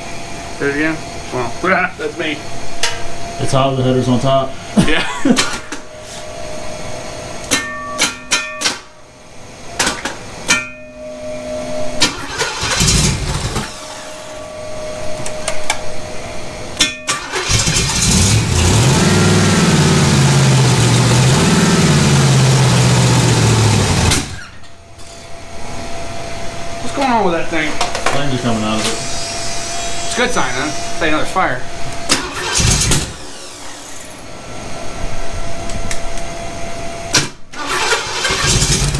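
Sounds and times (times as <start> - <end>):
car engine revving: 12.0 - 14.3, 17.3 - 24.4
engine clicks and clatters: 37.6 - 38.9.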